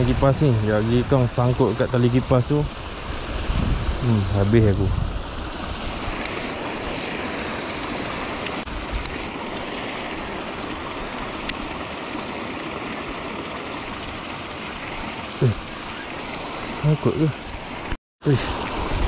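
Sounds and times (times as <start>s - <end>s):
pond aerator churning water: 0.0s - 19.0s.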